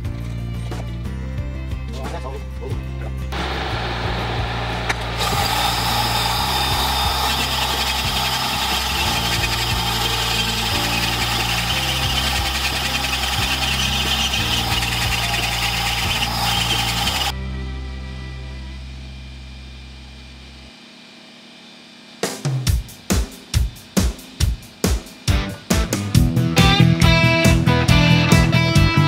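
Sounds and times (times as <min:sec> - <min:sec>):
rotary tool grinding wood: 0:05.0 - 0:17.3.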